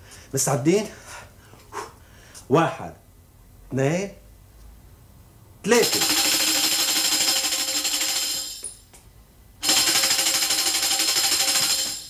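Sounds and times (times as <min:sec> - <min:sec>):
tambourine shaken rapidly: 0:05.7 - 0:08.9, 0:09.6 - 0:12.0.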